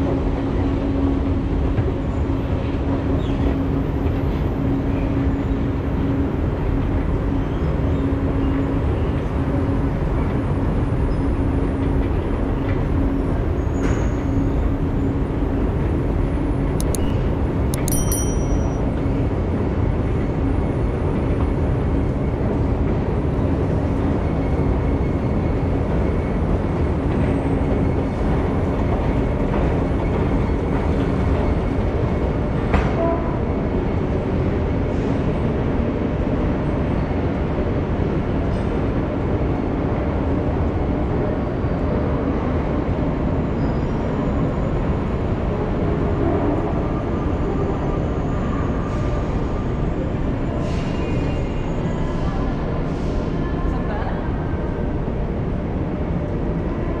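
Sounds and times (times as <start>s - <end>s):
low rumble of metro station: 0.0s - 57.0s
sharp click: 16.8s - 18.7s.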